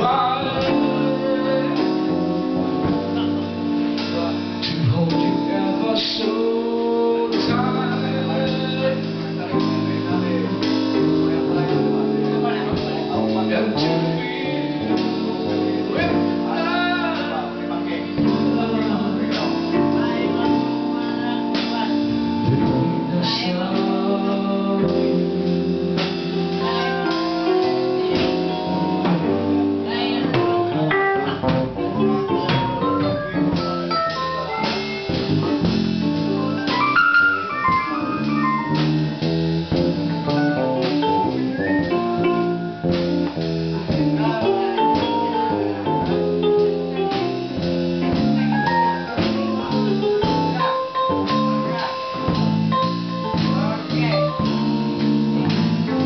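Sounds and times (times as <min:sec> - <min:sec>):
electric bass guitar: 0:00.0 - 0:56.0
piano: 0:00.0 - 0:56.0
plucked guitar: 0:24.8 - 0:56.0.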